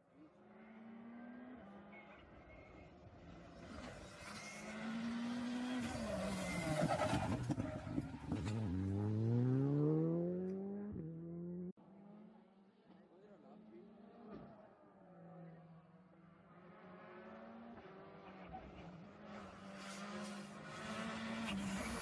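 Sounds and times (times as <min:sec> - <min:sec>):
rally car engine revving: 0:03.6 - 0:14.5, 0:16.5 - 0:22.0.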